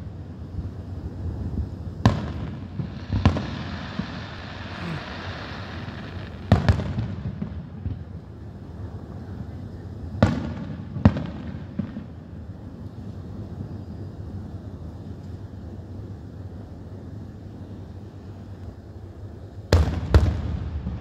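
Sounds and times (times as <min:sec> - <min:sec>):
steady hiss: 0:00.0 - 0:21.0
firework shells booming: 0:02.0 - 0:08.1.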